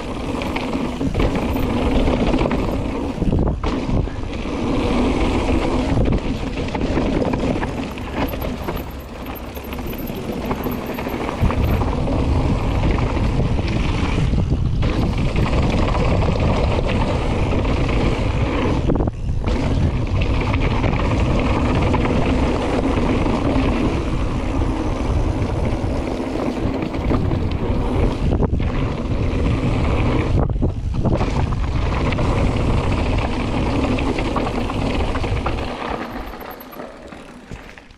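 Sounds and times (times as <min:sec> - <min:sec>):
wind rush on microphone: 0:00.0 - 0:36.9
bike tyres rumbling and rattling: 0:00.0 - 0:37.9.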